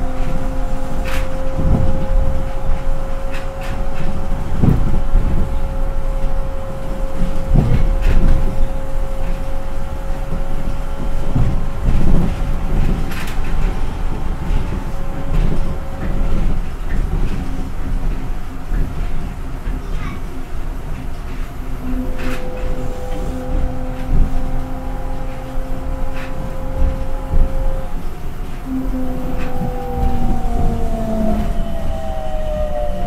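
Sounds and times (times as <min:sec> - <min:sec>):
low train rumble: 0:00.0 - 0:33.0
steady whine: 0:21.5 - 0:33.0.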